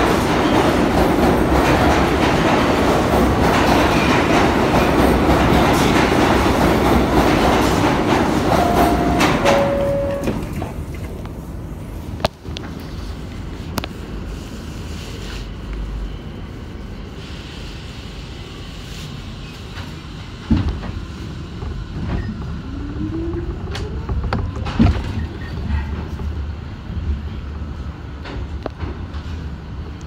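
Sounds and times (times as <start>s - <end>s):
subway train low rumble: 0.0s - 30.0s
train whine pulling away: 6.2s - 11.0s.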